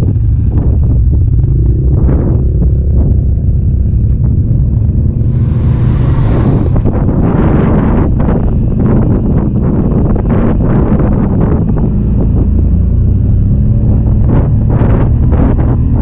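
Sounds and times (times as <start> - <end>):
atv engine rumbling: 0.0 - 10.4
rushing hiss: 5.1 - 7.2.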